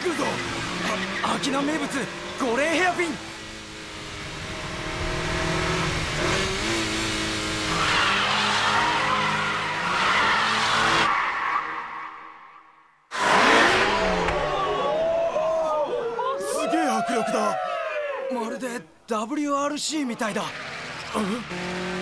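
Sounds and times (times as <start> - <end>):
tyres squealing and skidding: 0.0 - 3.2, 7.5 - 18.8, 19.9 - 21.8
car engine running hard: 0.0 - 11.1, 20.4 - 22.0.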